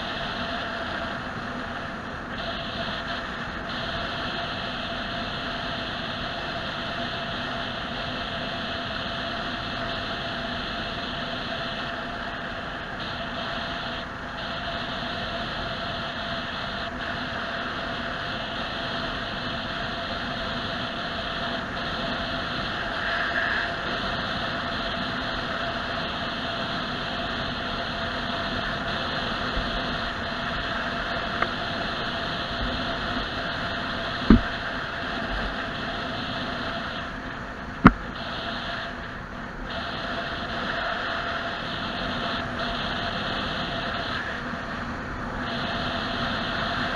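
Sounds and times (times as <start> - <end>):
vehicle engine and road noise: 0.0 - 46.9
sharp thumps: 34.3 - 34.5.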